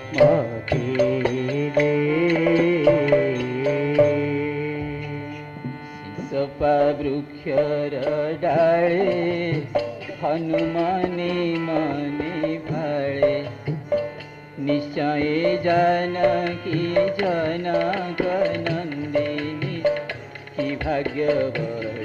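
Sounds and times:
percussive strikes: 0.0 - 6.3, 7.5 - 22.0
devotional singing: 0.0 - 13.8, 14.6 - 22.0
instrumental accompaniment: 0.0 - 22.0.

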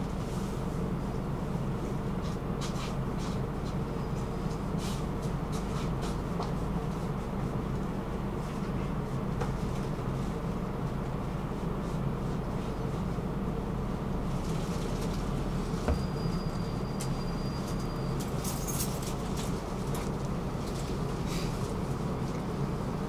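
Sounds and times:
tram rumbling on rails: 0.0 - 23.0.

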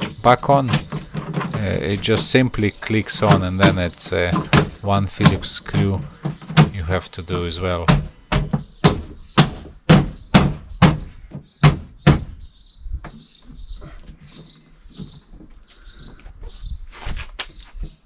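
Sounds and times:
hand knocking plastic trim: 0.0 - 7.0.

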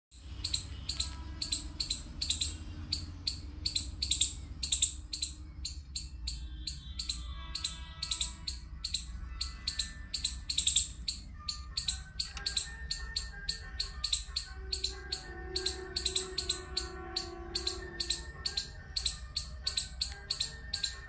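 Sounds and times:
melody of held notes: 0.3 - 21.0
crisp high percussion beat: 7.1 - 21.0.

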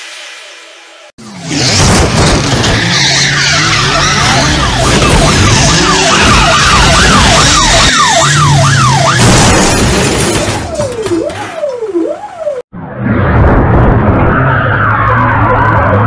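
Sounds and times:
siren wail: 2.5 - 16.0
police siren yelping: 2.8 - 12.7.

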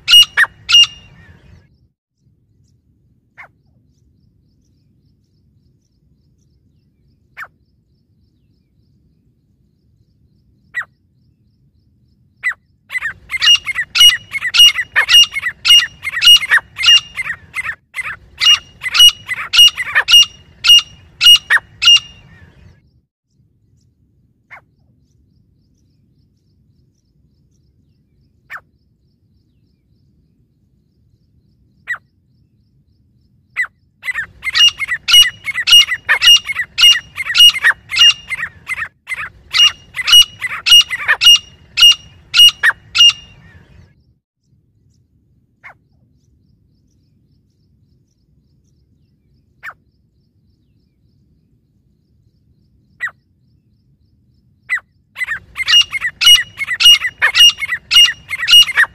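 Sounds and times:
francolins calling: 0.0 - 1.6, 12.4 - 22.8, 33.5 - 43.9, 54.6 - 58.9.

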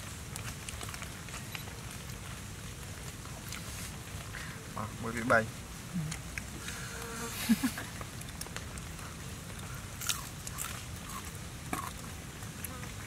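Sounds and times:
man chewing food: 0.0 - 4.4, 7.9 - 13.0.

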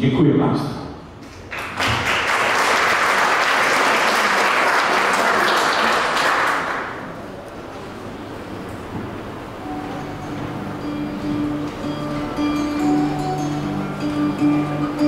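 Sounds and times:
audience applauding: 1.3 - 7.2.

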